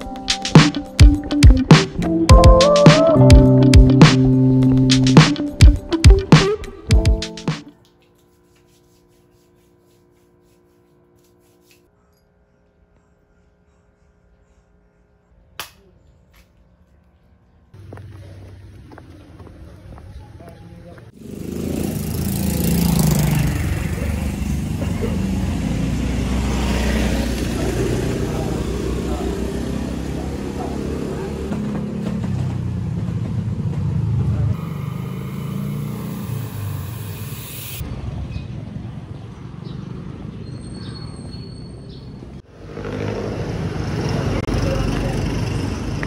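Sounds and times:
low rumble of traffic: 0:14.1 - 0:46.0
motor scooter engine running: 0:21.2 - 0:36.9.

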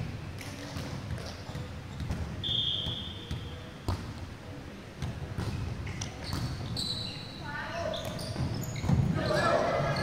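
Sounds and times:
sneaker squeak: 0:00.8 - 0:04.1, 0:05.4 - 0:10.0.

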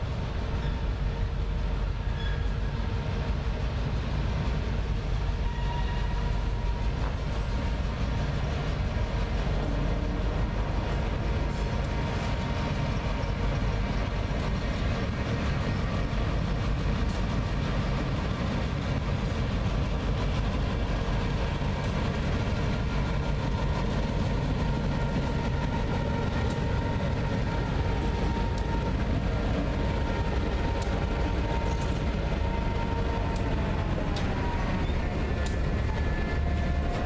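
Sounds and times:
locomotive engines rumbling: 0:00.0 - 0:37.0
faint clicks: 0:30.8 - 0:31.0, 0:35.4 - 0:35.6.

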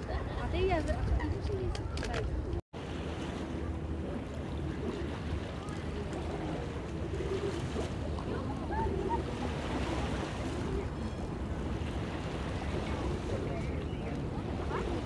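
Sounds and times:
faint voices: 0:03.3 - 0:15.0.

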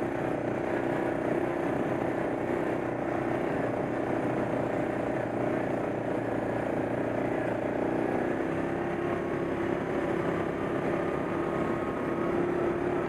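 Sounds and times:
atv engine droning: 0:00.0 - 0:13.0.

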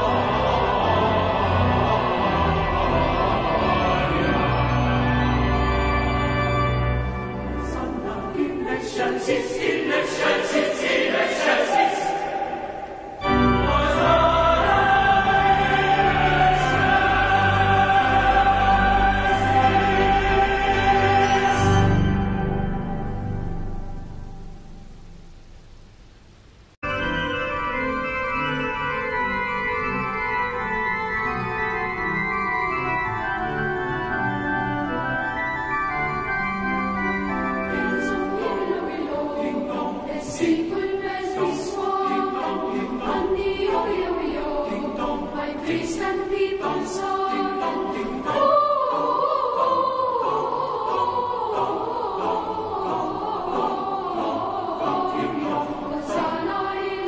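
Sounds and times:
pipe organ chords: 0:00.0 - 0:08.5, 0:12.1 - 0:24.8, 0:26.8 - 0:40.2
choir singing a carol: 0:00.0 - 0:24.7, 0:27.0 - 0:57.0.

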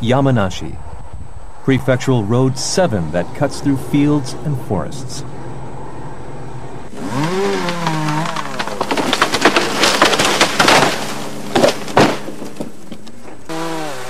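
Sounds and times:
chainsaw revving: 0:06.9 - 0:11.6, 0:13.5 - 0:14.0
heavy thuds of falling tree: 0:06.9 - 0:13.5
tree cracking and splintering: 0:06.9 - 0:14.0.

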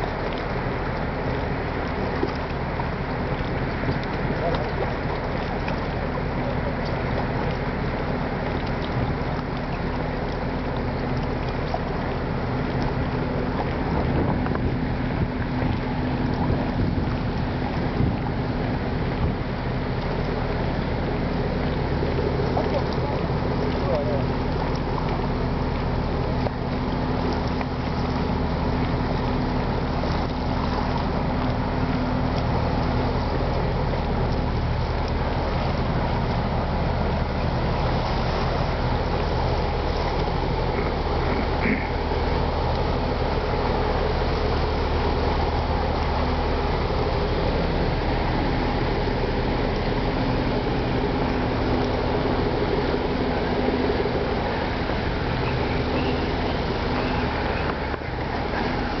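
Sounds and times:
low steady hum: 0:00.0 - 0:59.0
wind noise on microphone: 0:13.8 - 0:19.6.

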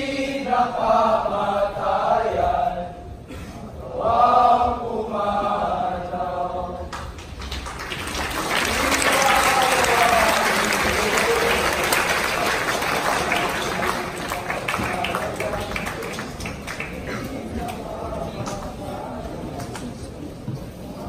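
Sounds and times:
group chanting in unison: 0:00.0 - 0:03.0, 0:03.8 - 0:06.9, 0:08.4 - 0:16.2
audience applause: 0:07.1 - 0:17.6
voices: 0:08.0 - 0:21.0.

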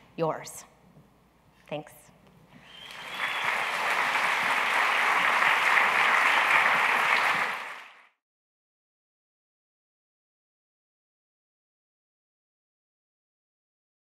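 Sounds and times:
audience applauding: 0:02.6 - 0:08.2.

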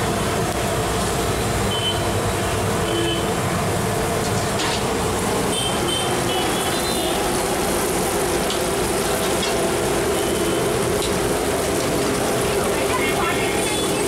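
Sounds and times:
oil sizzling in deep fryer: 0:00.0 - 0:14.0.

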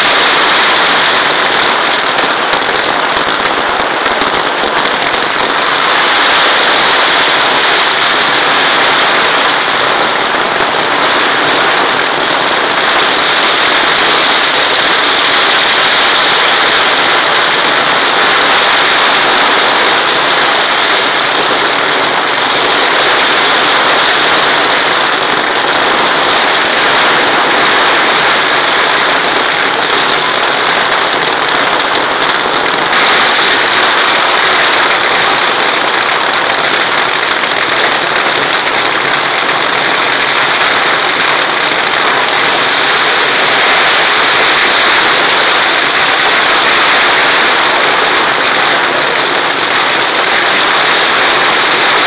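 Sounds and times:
fireworks crackling: 0:00.0 - 0:52.0.

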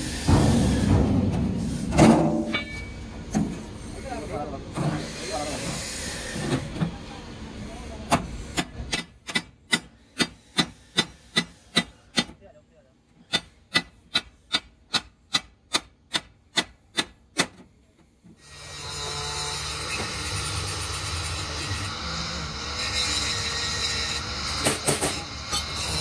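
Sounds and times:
hammer striking steel sheet: 0:00.2 - 0:03.0.

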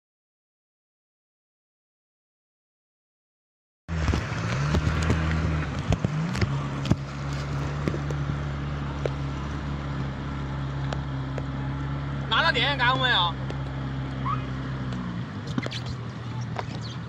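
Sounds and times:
rushing wind: 0:03.9 - 0:10.2
water rushing: 0:03.9 - 0:10.4
motorboat engine running: 0:03.9 - 0:17.0.

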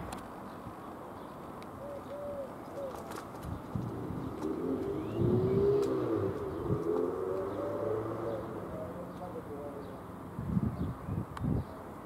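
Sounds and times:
pigeon cooing: 0:01.8 - 0:03.2, 0:03.9 - 0:09.8.

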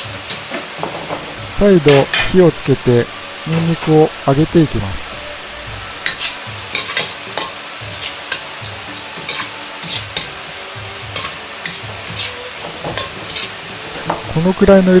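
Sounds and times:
garlic sizzling in oil: 0:00.0 - 0:15.0
metal ladle scraping a wok: 0:05.2 - 0:08.5, 0:12.0 - 0:14.2.

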